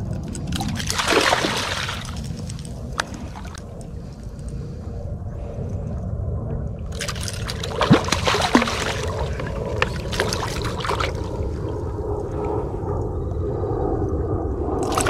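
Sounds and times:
low rumble: 0:00.0 - 0:15.0
fish splashing at surface: 0:00.6 - 0:02.2, 0:06.9 - 0:11.3.

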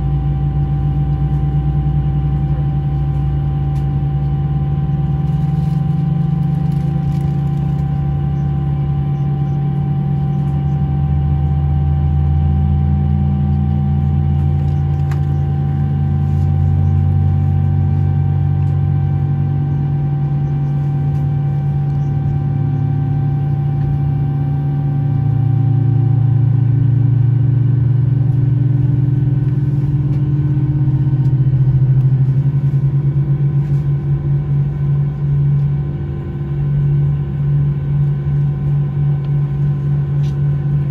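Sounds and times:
jet engines droning in cabin: 0:00.0 - 0:40.9.

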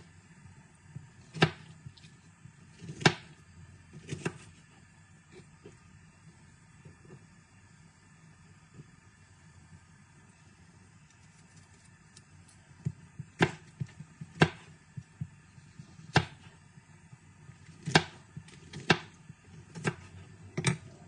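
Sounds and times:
knife chopping on plastic board: 0:01.3 - 0:01.7, 0:02.8 - 0:03.4, 0:04.0 - 0:04.4, 0:13.4 - 0:14.7, 0:16.1 - 0:16.4, 0:17.8 - 0:20.8.

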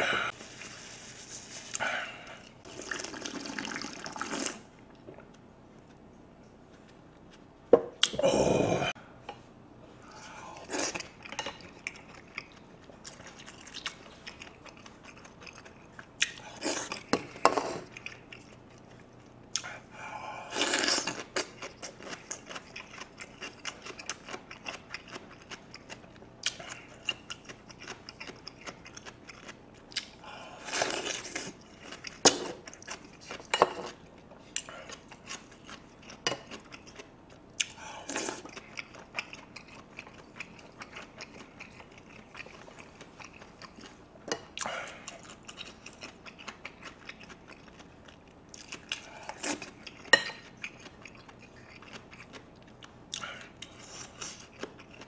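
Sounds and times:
chewing and crunching: 0:10.8 - 0:19.8, 0:20.7 - 0:55.0.

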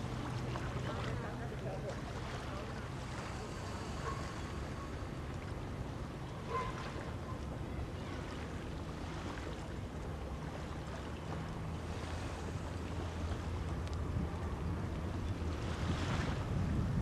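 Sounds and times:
wind noise on microphone: 0:13.6 - 0:17.0.

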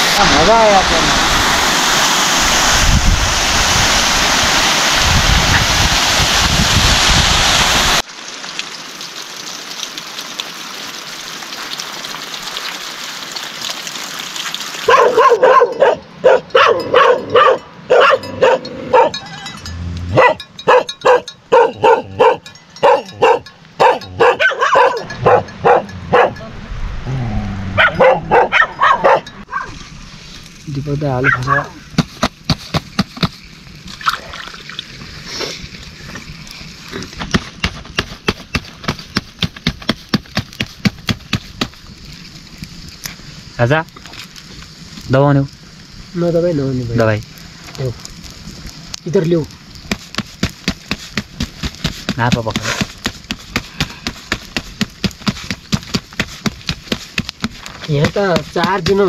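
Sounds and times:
water rushing: 0:00.0 - 0:59.0
dog barking: 0:14.8 - 0:19.2, 0:20.1 - 0:26.4, 0:27.8 - 0:29.8, 0:31.2 - 0:31.8
faint hiss: 0:29.8 - 0:37.2, 0:39.8 - 0:59.0.

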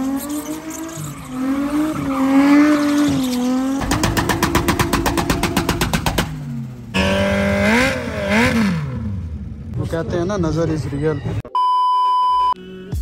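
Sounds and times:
car engine revving: 0:00.0 - 0:09.8.

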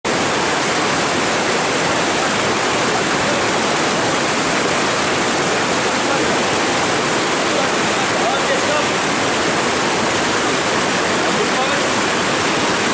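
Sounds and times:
river rapids rushing: 0:00.1 - 0:12.9.

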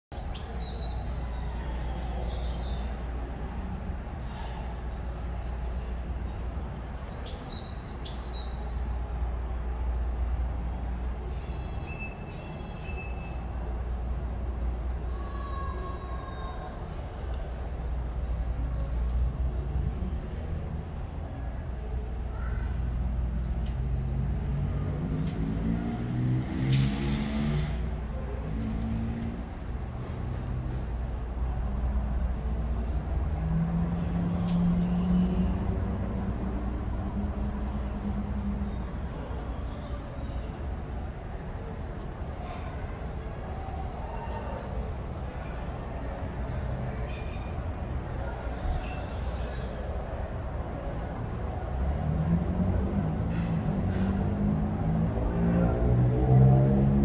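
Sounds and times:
low traffic rumble: 0:00.1 - 0:57.0.

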